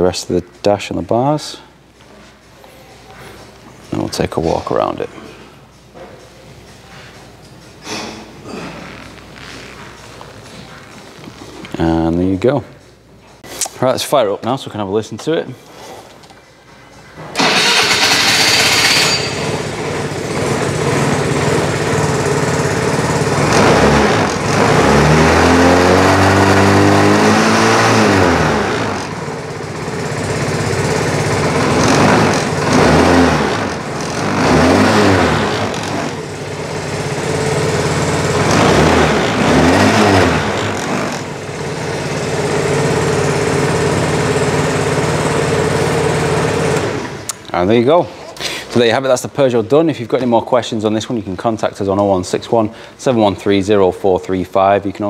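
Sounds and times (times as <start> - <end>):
scooter engine starting and idling: 17.3 - 47.3
scooter engine revving: 17.4 - 47.3.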